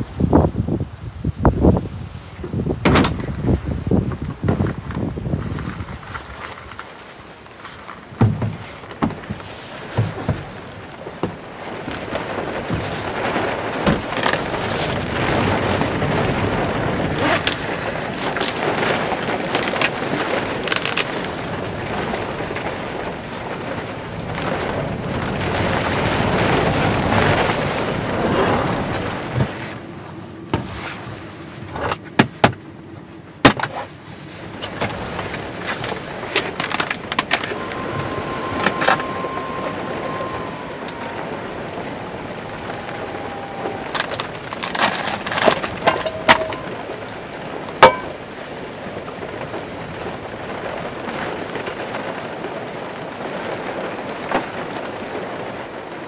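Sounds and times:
heavy rain on a vehicle roof: 0:00.0 - 0:56.0
sharp knocks inside van: 0:02.8 - 0:03.2, 0:08.2 - 0:09.4, 0:32.1 - 0:32.6, 0:33.4 - 0:33.8.

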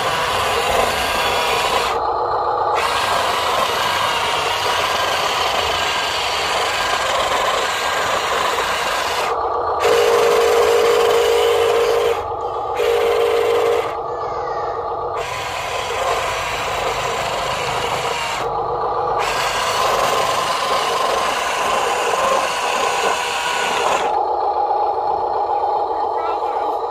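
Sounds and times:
toy truck motor whine: 0:00.0 - 0:26.9.

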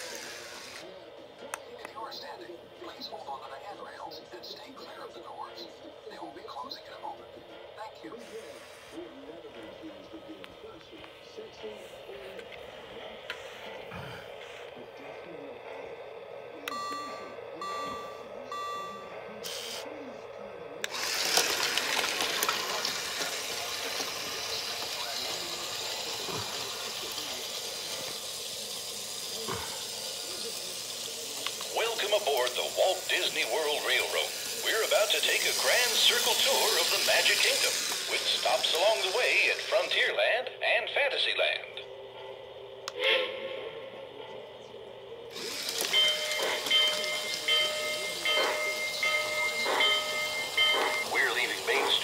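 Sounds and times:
model train steam hiss: 0:00.0 - 0:00.8, 0:22.8 - 0:40.0
high ringing tone: 0:16.6 - 0:19.8, 0:45.8 - 0:51.4.

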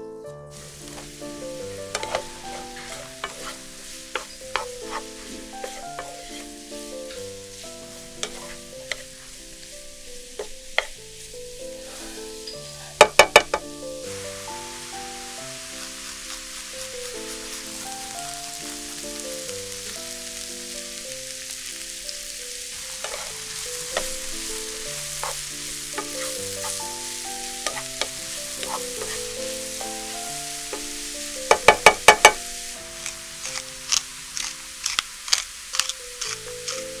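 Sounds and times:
background music: 0:00.0 - 0:35.1, 0:35.8 - 0:37.0
onions and mushrooms sizzling in pan: 0:00.5 - 0:37.0
pepper mill grinding clicks: 0:33.5 - 0:36.8.

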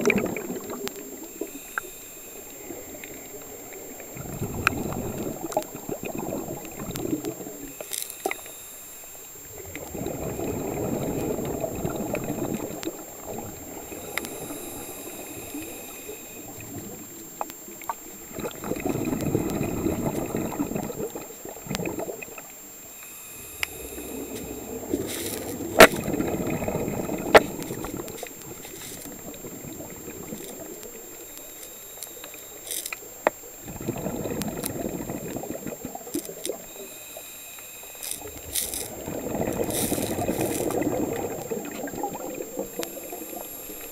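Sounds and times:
exhaled bubbles gurgling: 0:00.0 - 0:43.9
regulator inhale hiss: 0:10.5 - 0:18.2, 0:22.8 - 0:33.6, 0:36.1 - 0:41.5.

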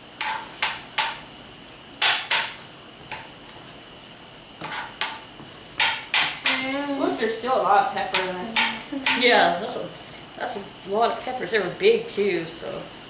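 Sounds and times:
food simmering hiss: 0:00.0 - 0:13.0
spatula scraping a skillet: 0:00.2 - 0:01.2, 0:04.6 - 0:09.4.

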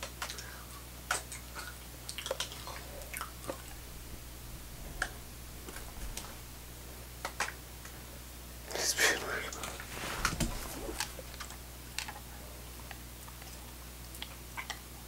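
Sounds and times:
dog chewing and lip smacking: 0:01.3 - 0:06.9, 0:09.5 - 0:14.8.

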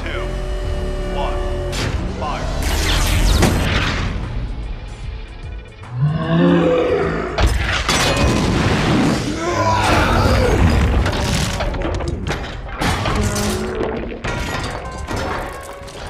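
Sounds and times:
film music score: 0:00.0 - 0:16.0
crashing shattering debris: 0:10.0 - 0:16.0.

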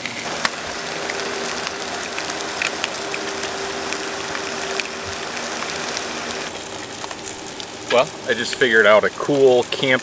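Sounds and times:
small pops: 0:00.0 - 0:08.7
fish sizzling in hot oil: 0:00.0 - 0:10.0.

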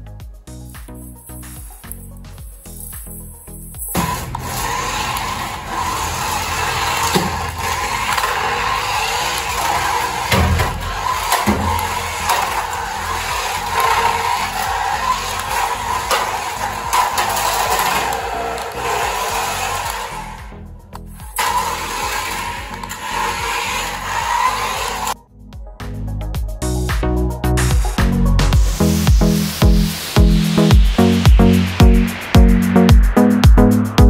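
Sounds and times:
toy car motor whirring: 0:01.0 - 0:25.2.

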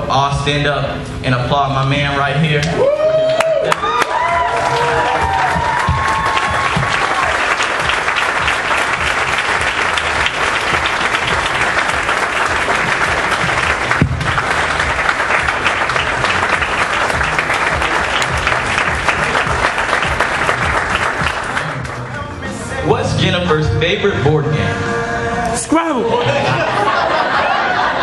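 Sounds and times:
crowd applauding: 0:02.7 - 0:22.3.

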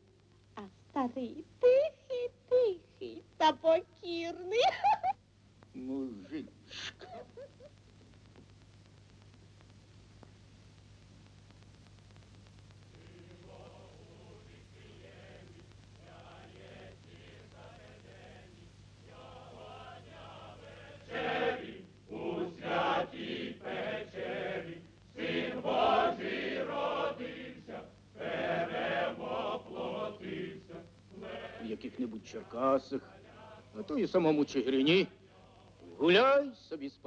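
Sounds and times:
group of voices singing a chant: 0:13.0 - 0:36.0.

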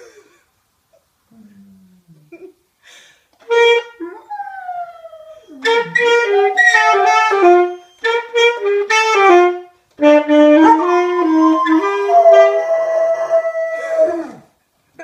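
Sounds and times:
saxophone melody: 0:03.4 - 0:14.3
dog howling: 0:10.7 - 0:14.5.

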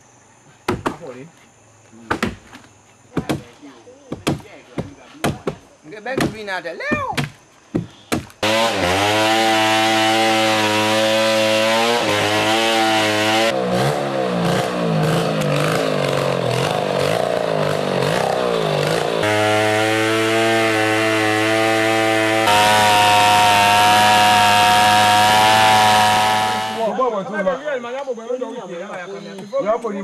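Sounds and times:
chainsaw cutting log: 0:08.2 - 0:26.8.

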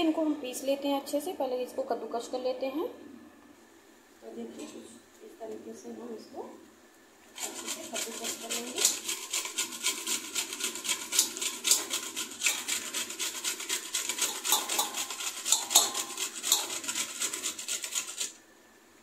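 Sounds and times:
coconut grating on metal grater: 0:07.3 - 0:18.4.

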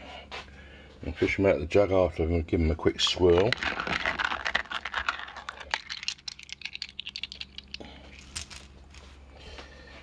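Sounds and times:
small metal parts clicking: 0:03.4 - 0:08.7.

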